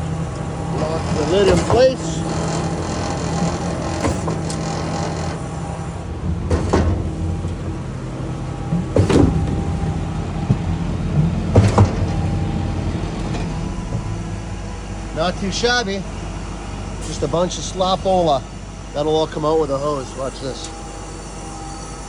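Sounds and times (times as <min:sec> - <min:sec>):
concrete pump running: 0:00.0 - 0:22.0
sharp knocks: 0:08.7 - 0:09.8.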